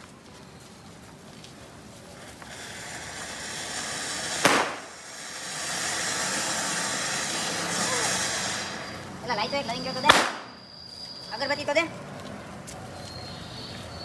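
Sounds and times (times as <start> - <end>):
fireworks hissing: 0.0 - 11.7
firecracker bang: 2.4 - 9.3, 9.9 - 10.6.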